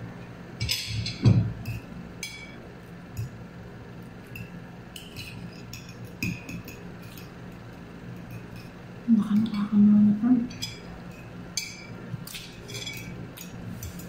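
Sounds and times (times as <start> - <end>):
cutlery clinking on ceramic bowls: 0.6 - 2.6, 4.2 - 8.8, 10.5 - 14.0.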